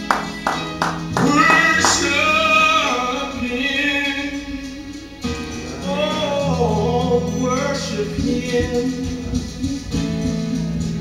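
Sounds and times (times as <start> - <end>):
instrumental accompaniment: 0.0 - 11.0
person singing long notes: 1.0 - 5.0.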